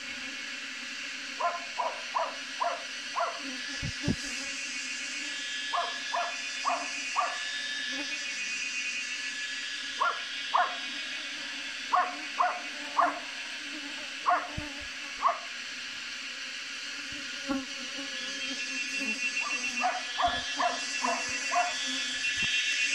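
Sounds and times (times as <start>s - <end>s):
swarm of bees humming: 0.0s - 22.9s
dog barking: 1.4s - 3.4s, 5.7s - 7.4s, 10.0s - 10.8s, 11.9s - 13.2s, 14.2s - 14.6s, 15.2s - 15.5s, 19.4s - 21.8s.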